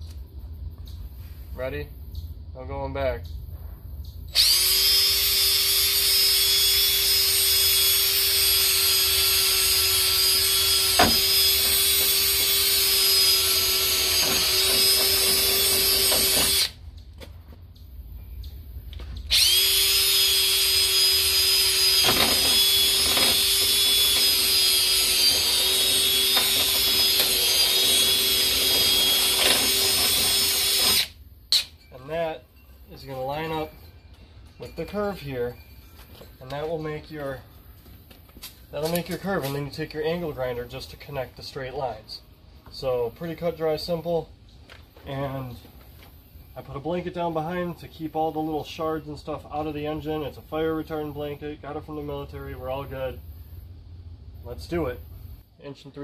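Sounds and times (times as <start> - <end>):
power tool high-pitched whine: 4.3 - 16.8, 19.3 - 31.7.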